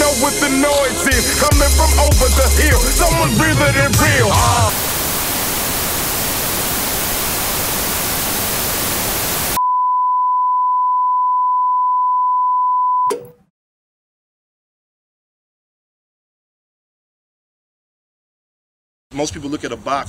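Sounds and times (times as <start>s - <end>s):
television static hiss: 4.7s - 9.6s.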